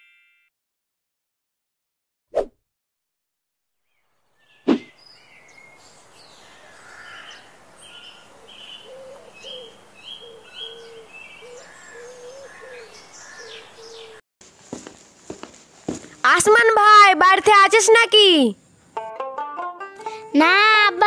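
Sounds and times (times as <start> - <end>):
birds chirping: 3.9 - 14.2
low bird call: 4.5 - 14.2.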